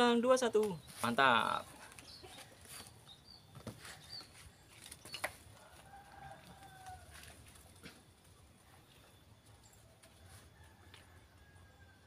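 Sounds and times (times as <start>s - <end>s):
faint rooster crowing: 5.5s - 7.6s, 9.8s - 12.0s.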